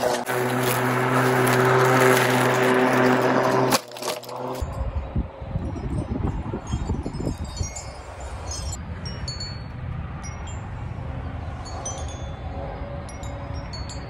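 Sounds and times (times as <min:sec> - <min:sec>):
wind chimes ringing: 0:01.0 - 0:14.0
wind rumble on microphone: 0:04.5 - 0:14.0.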